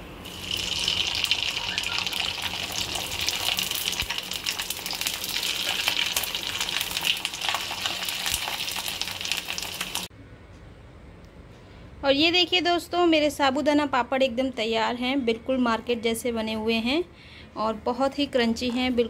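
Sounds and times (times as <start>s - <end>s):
deep-frying sizzle with crackles: 0.0s - 10.1s.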